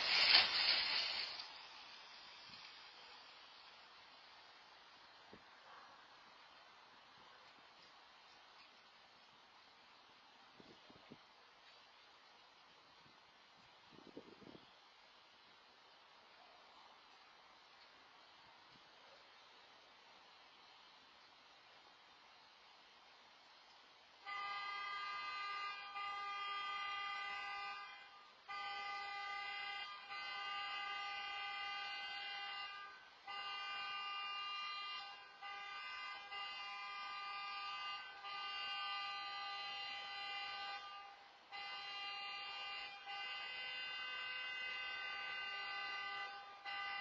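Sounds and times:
car horn sounding: 24.2s - 47.0s.

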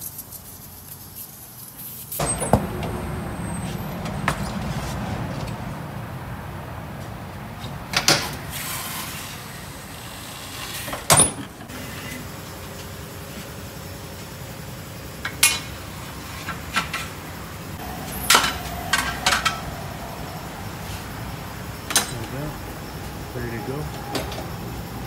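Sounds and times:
pneumatic rushing noise: 8.0s - 12.3s.

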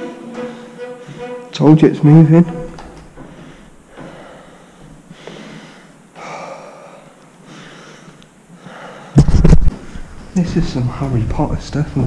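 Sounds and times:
man breathing hard: 3.2s - 9.2s.

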